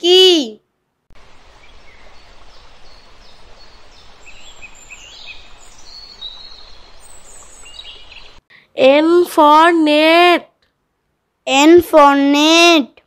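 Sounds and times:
steady background hiss: 0.0s - 13.0s
small birds chirping: 1.2s - 8.5s.

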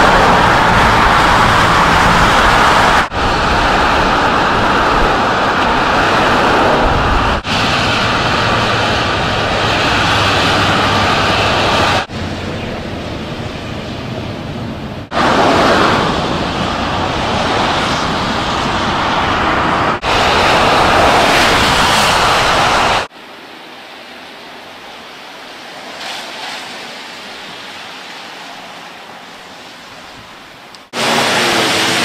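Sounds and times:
wind rushing over microphone: 0.0s - 23.1s.

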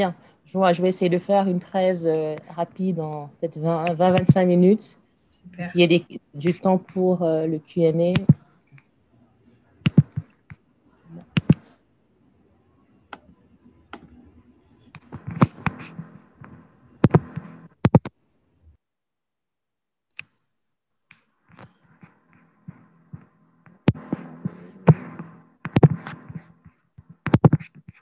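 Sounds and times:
faint background hiss: 0.0s - 18.6s.

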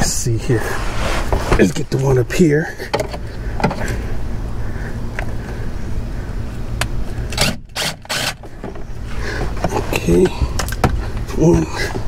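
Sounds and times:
steady low hum: 0.0s - 12.0s
cordless drill running: 7.4s - 8.4s.

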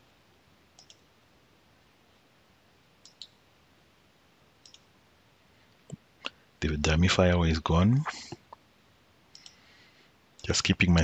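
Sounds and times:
computer mouse clicks: 0.8s - 1.1s, 3.0s - 3.4s, 4.6s - 4.9s, 9.3s - 9.6s.

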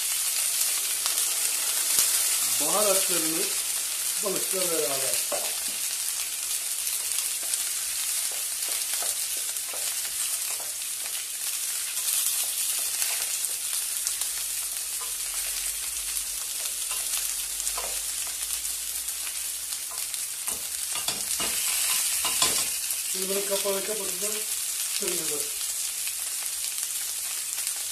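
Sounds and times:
vegetables sizzling in a pot: 0.0s - 27.9s
wooden spoon tapping and scraping: 7.0s - 11.2s.

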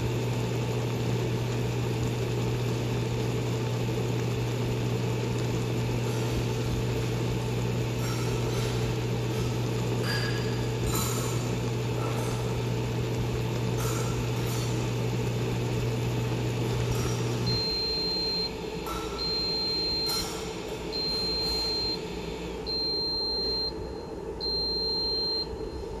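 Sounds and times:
electric cooktop humming: 0.0s - 26.0s
cooktop beeping: 13.1s - 26.0s.

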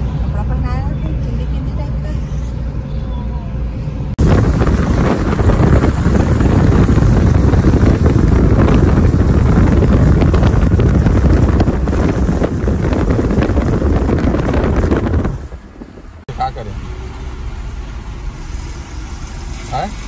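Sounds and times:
car road noise: 0.0s - 20.0s
wind buffeting microphone: 4.0s - 16.2s.

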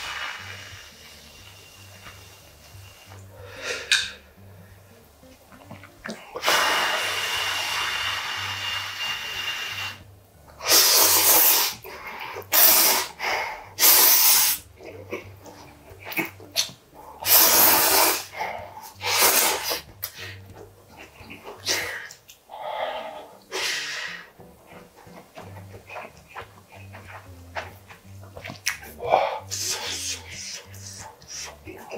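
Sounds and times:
sharp puffing breaths: 0.0s - 5.0s, 6.2s - 31.9s
noodles slurped: 5.5s - 22.4s, 23.4s - 31.9s.

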